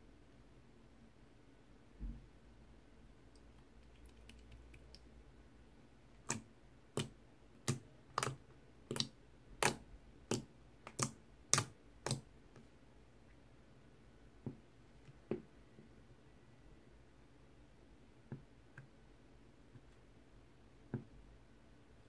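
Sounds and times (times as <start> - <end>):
slime clicking under fingertips: 6.2 - 12.3.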